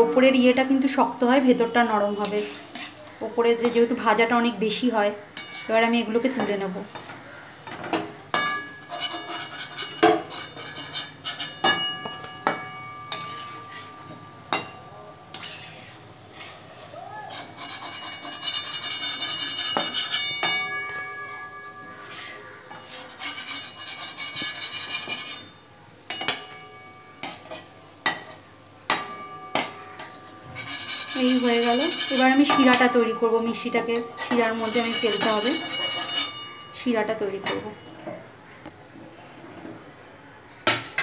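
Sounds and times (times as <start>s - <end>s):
oil sizzling: 0.0s - 37.4s
spoon knocking and scraping pan: 2.1s - 3.0s, 5.4s - 26.6s, 27.2s - 36.6s.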